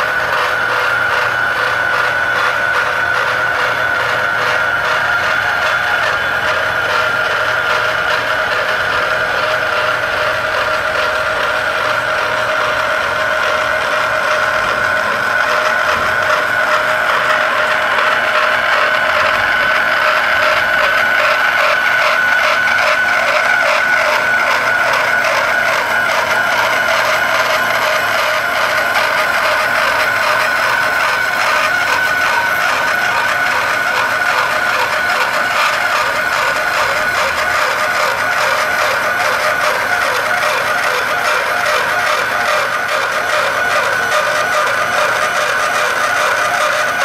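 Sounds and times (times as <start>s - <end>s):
cutter scraping steel: 0.0s - 47.0s
motor whine: 0.0s - 47.0s.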